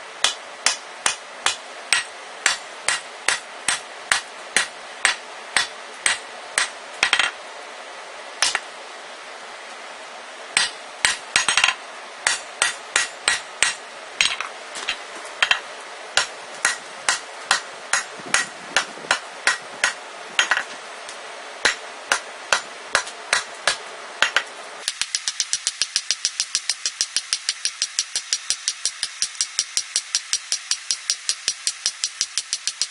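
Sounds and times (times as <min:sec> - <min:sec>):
hammer striking metal on anvil: 0:00.2 - 0:07.3, 0:08.4 - 0:08.6, 0:10.6 - 0:14.4, 0:16.2 - 0:20.7, 0:21.6 - 0:29.6
steady hiss: 0:24.8 - 0:32.9.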